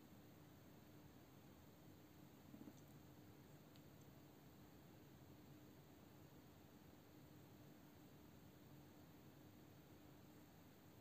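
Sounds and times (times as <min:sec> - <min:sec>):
faint clicks: 0:02.5 - 0:04.2.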